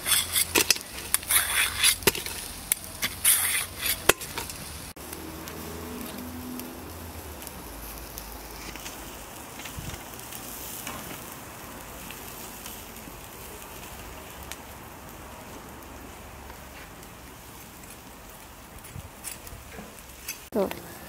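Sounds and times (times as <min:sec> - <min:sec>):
metal skewers clicking: 0:00.0 - 0:04.6
meat sizzling over charcoal: 0:00.0 - 0:21.0.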